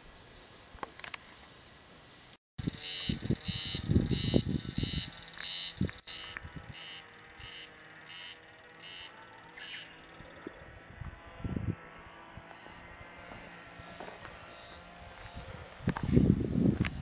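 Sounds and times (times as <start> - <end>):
cicadas buzzing: 2.6 - 11.6.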